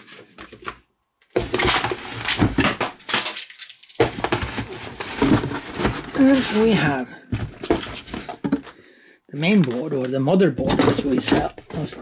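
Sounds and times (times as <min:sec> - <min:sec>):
crackly cardboard rustling: 0:00.0 - 0:08.7, 0:09.4 - 0:12.0
box scraping and knocking in cardboard: 0:01.4 - 0:02.8, 0:04.0 - 0:08.7.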